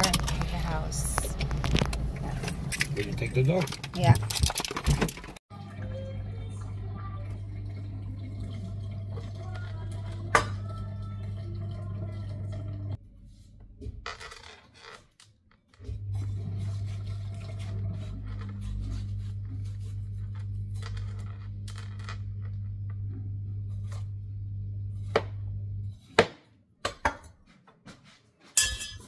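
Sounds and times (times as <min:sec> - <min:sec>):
low electrical hum: 0:15.9 - 0:26.0.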